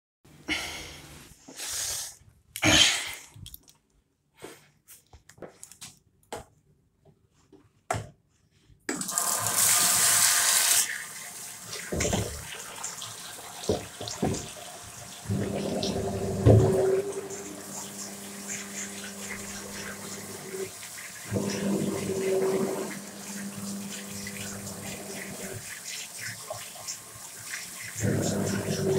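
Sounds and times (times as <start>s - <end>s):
tap water running into basin: 8.9s - 28.9s.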